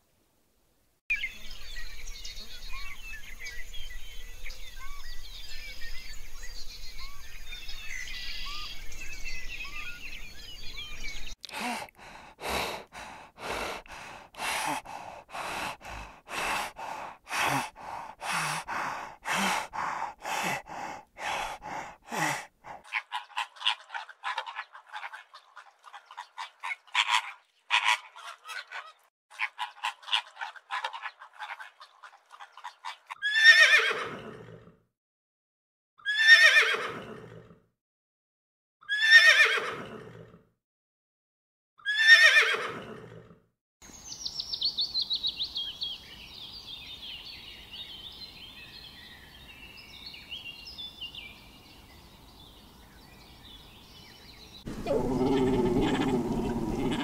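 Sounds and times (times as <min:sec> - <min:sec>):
animal calls: 0:54.7 - 0:57.0.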